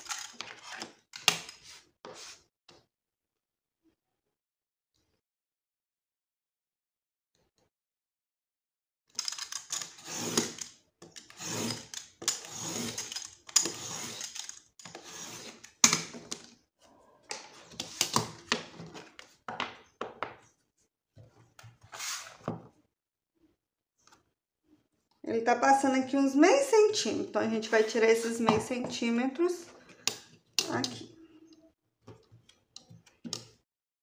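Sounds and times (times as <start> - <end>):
blade scraping through cardboard: 9.8 - 10.6, 11.2 - 15.9, 21.9 - 22.5.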